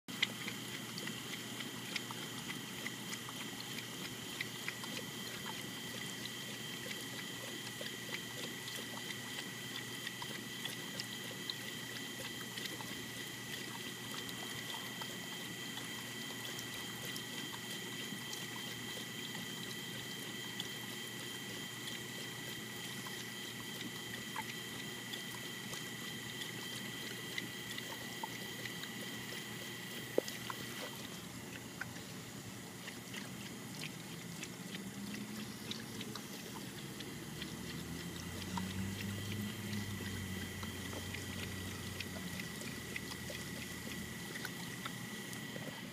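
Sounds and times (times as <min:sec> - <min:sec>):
dog lapping water: 0:00.1 - 0:45.9
water trickling: 0:32.7 - 0:45.8.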